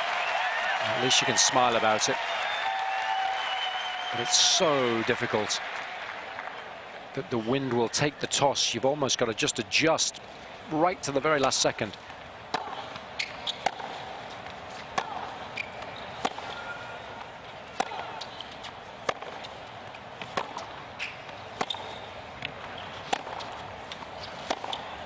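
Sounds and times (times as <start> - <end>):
wind: 0.0 - 25.0
tennis ball bouncing on court: 12.5 - 25.0.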